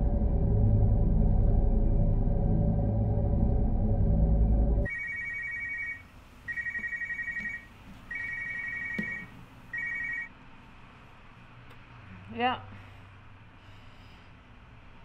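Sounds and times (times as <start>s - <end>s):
low droning background music: 0.0s - 4.9s
mobile phone ringing: 4.9s - 10.3s.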